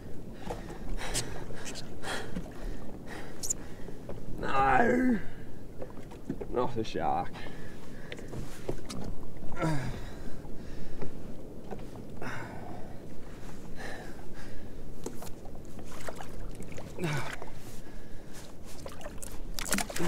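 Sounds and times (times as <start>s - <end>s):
wind rumble on microphone: 7.3s - 20.0s
short grunts: 9.6s - 10.0s, 17.0s - 17.4s
water splashing against jet ski: 15.0s - 17.6s, 18.5s - 20.0s.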